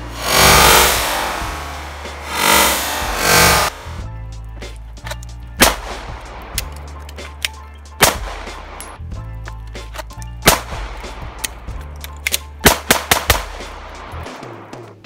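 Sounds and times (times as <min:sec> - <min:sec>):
pistol shots: 0:05.6 - 0:06.9, 0:08.0 - 0:09.0, 0:10.4 - 0:14.1.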